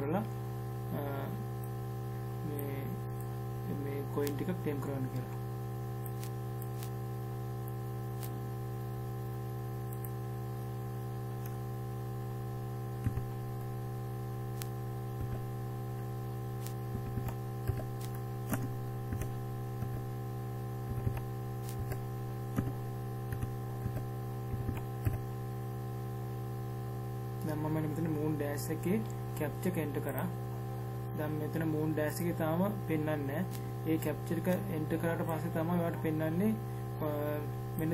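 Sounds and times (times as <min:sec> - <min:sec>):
electrical mains hum: 0:00.0 - 0:37.9
keyboard keys tapping: 0:16.9 - 0:20.1, 0:20.9 - 0:25.2.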